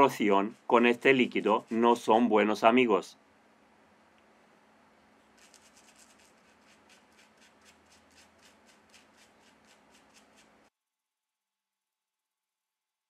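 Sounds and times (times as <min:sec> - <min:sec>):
small brush scrubbing: 0:00.0 - 0:02.6, 0:05.3 - 0:10.7.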